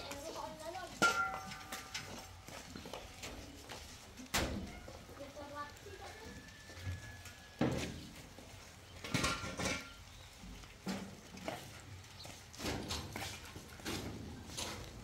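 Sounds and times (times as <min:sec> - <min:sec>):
sharp knocks and clatters: 0:00.9 - 0:03.0, 0:09.0 - 0:10.0.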